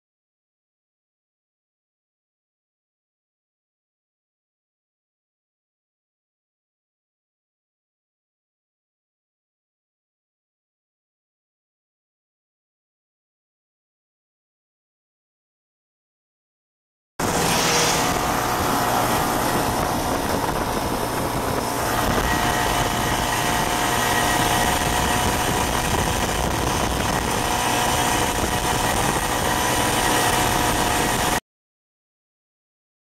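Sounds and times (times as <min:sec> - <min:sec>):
snowmobile engine running: 0:17.2 - 0:31.4.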